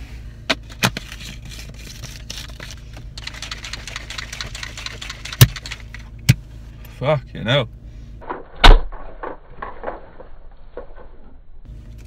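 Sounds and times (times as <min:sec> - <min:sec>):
shaker bottle rattling: 0:01.8 - 0:06.0
sharp clicks: 0:03.2 - 0:06.1.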